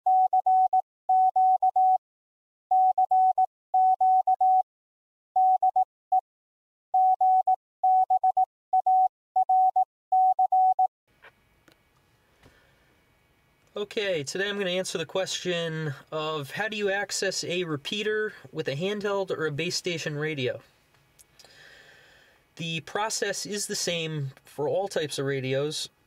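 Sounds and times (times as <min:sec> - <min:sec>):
morse code beeps: 0:00.1 - 0:02.0, 0:02.7 - 0:04.6, 0:05.4 - 0:06.2, 0:07.0 - 0:10.9.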